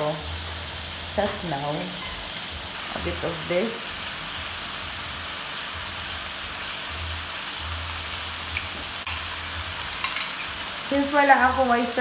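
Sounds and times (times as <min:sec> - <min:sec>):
vegetables sizzling in a wok: 0:00.0 - 0:12.0.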